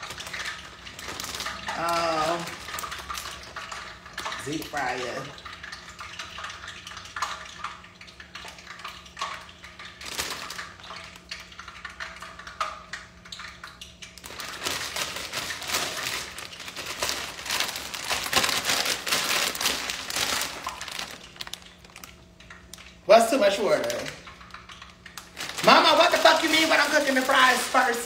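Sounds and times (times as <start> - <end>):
plastic bag crinkling: 0.0 - 4.8, 10.0 - 11.2, 14.2 - 28.0.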